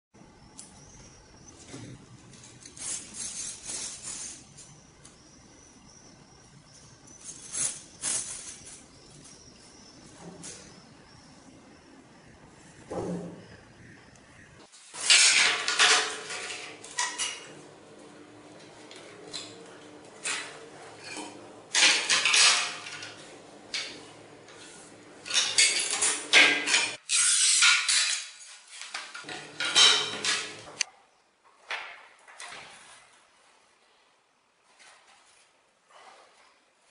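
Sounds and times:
metal template clattering on tiles: 15.0 - 17.5, 20.2 - 24.0, 25.2 - 30.6.

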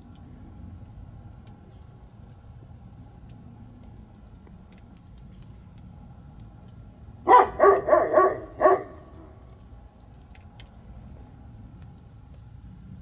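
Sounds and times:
low background rumble: 0.0 - 13.0
large dog barking: 7.2 - 9.4.

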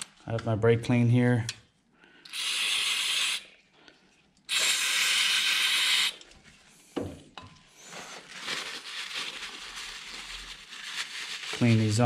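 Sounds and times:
aerosol spraying: 2.3 - 3.5, 4.5 - 6.2.

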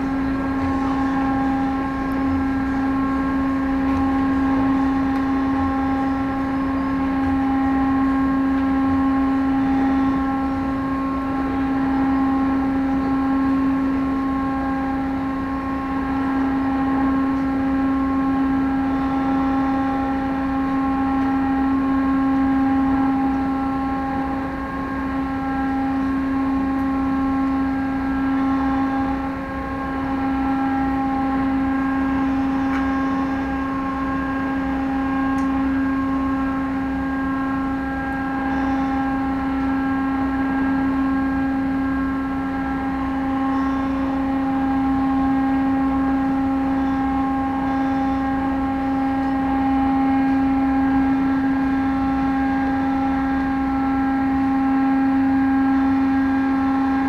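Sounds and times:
ship engines droning: 0.0 - 57.0.

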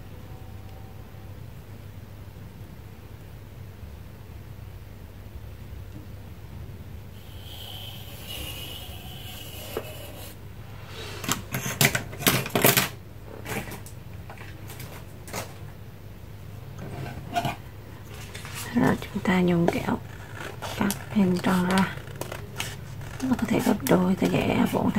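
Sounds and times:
steady low hum: 0.0 - 24.9
squeaky scrape: 7.2 - 10.4.

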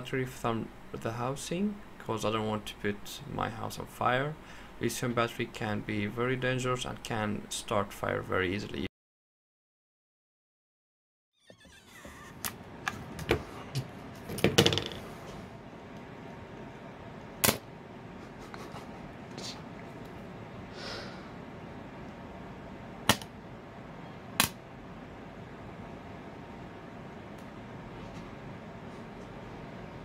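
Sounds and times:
steady low hiss: 0.0 - 8.9.

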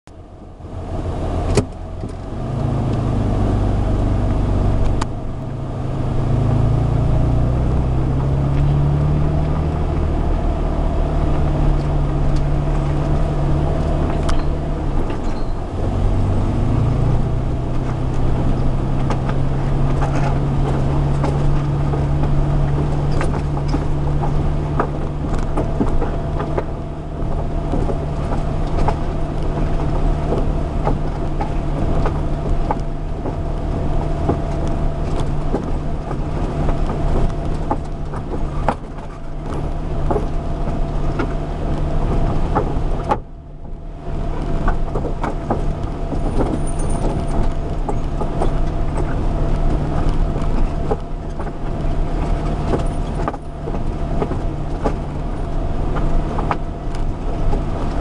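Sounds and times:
car engine from inside cab: 0.0 - 58.0
knocks and rattles: 11.2 - 43.4, 44.4 - 58.0.

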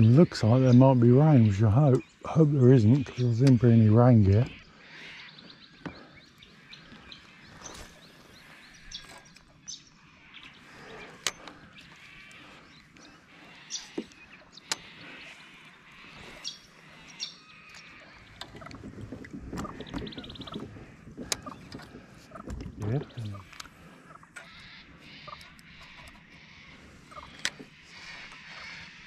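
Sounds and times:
bird chirps: 0.0 - 29.0
paddle knocking against kayak hull: 18.3 - 22.8.

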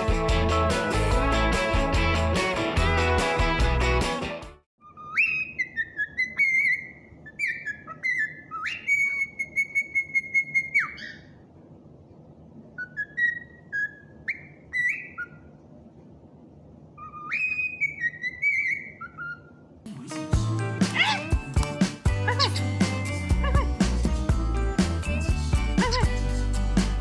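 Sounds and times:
cockatiel whistling a tune: 4.8 - 11.2, 12.8 - 15.4, 17.0 - 19.6.

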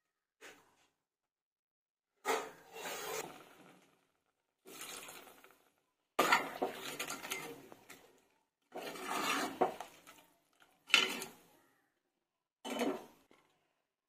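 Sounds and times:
ladle scraping and knocking pot: 6.2 - 8.0, 8.7 - 11.4, 12.7 - 13.5.

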